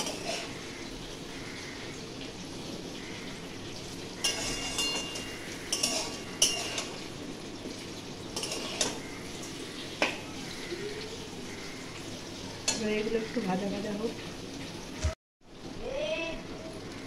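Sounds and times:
metal spatula scraping a pan: 0.0 - 0.7, 4.2 - 10.2
vegetables sizzling in a wok: 0.0 - 17.0.

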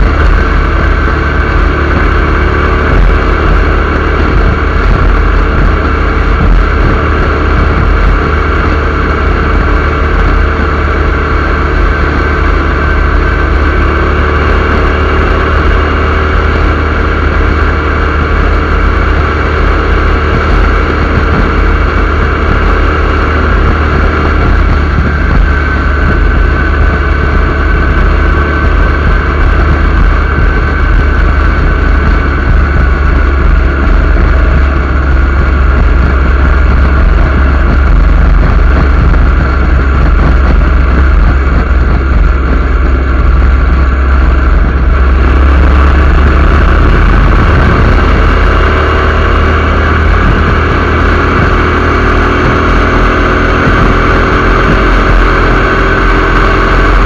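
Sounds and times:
motorcycle engine: 0.0 - 57.0
road noise: 0.0 - 57.0
wind rush buffeting microphone: 0.0 - 57.0.

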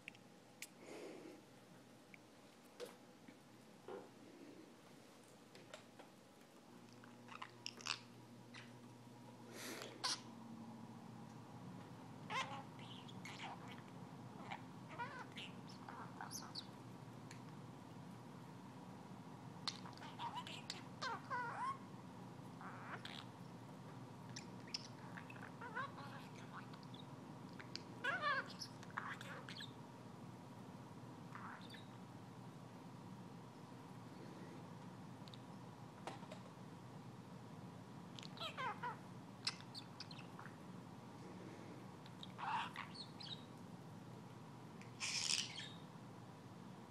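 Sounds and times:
budgie chirping and chattering: 31.4 - 31.9, 38.2 - 40.5, 42.1 - 43.5, 45.0 - 45.8.

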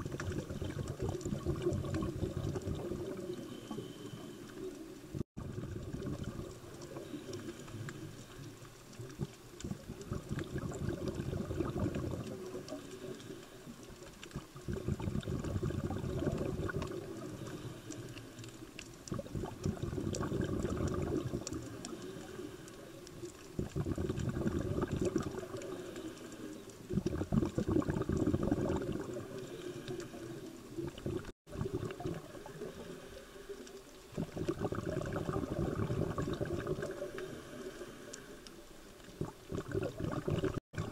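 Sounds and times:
exhaled bubbles gurgling underwater: 0.0 - 40.9.

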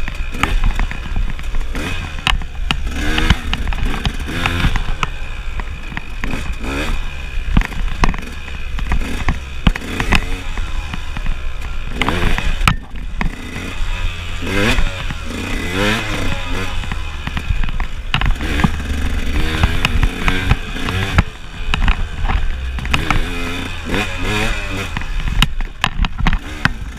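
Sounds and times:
bike knocking and rattling: 0.0 - 26.9
dirt bike engine revving: 0.0 - 26.9.

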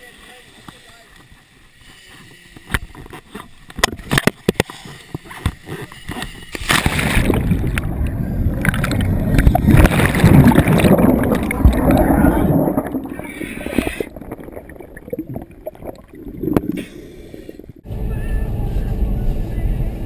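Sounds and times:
car engine rumbling while moving: 17.8 - 20.0.

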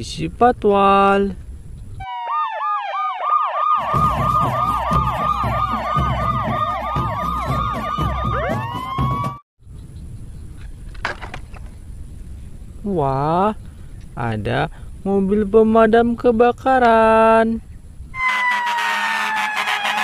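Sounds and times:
police sirens wailing: 2.0 - 9.4, 18.2 - 20.0.

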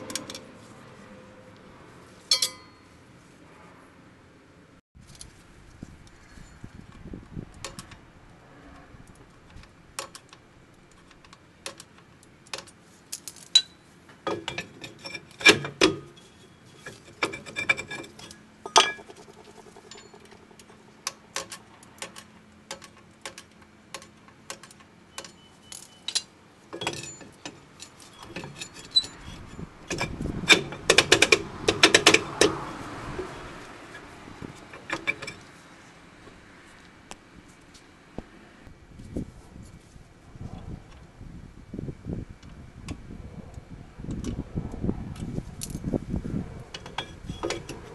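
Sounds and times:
metallic clicks of brake springs: 8.7 - 32.6
brake drum clattering and scraping: 9.6 - 35.6, 46.7 - 47.9.

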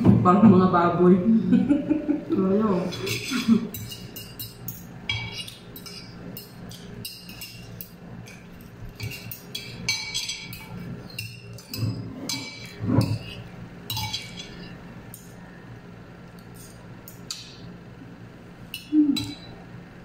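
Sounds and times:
cutlery clinking on plates: 2.9 - 15.4.

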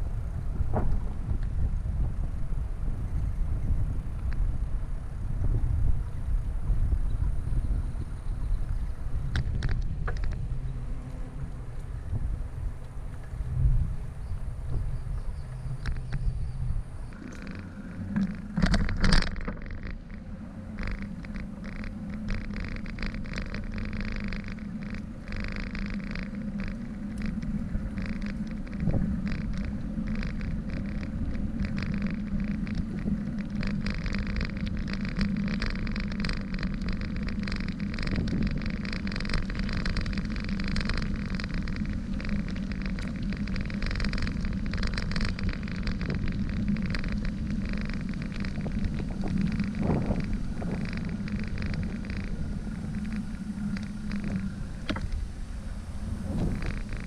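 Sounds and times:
bicycle rolling on pavement: 0.0 - 57.0
bicycle knocks: 0.6 - 1.6, 20.8 - 55.2
rattling clicks: 9.3 - 10.5, 17.1 - 55.4, 56.2 - 57.0.

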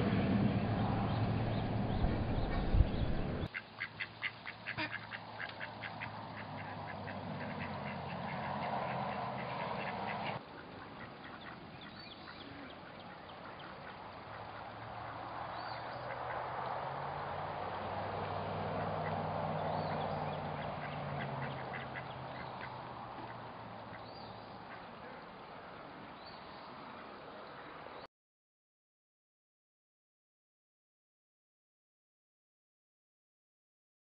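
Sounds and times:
low rumble with thump: 0.0 - 3.5
mallards quacking: 3.4 - 17.5, 18.4 - 25.4.

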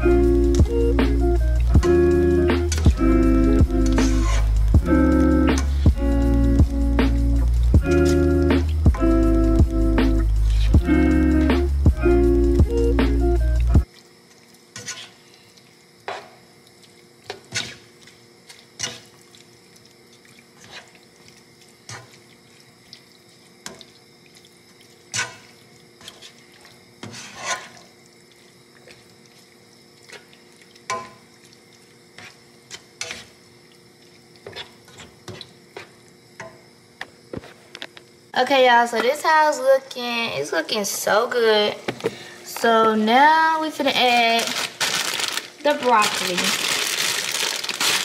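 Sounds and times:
faint steady hiss: 0.0 - 48.0
metal utensil scraping cooking pot: 4.0 - 4.5, 14.8 - 15.2, 27.0 - 27.8, 32.2 - 33.4.

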